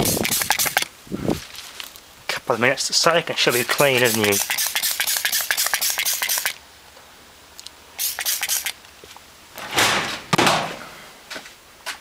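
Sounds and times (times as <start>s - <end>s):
spray bottle squirting: 0.0s - 0.9s, 3.5s - 6.6s, 8.0s - 8.8s
rough handling noises: 0.0s - 2.5s.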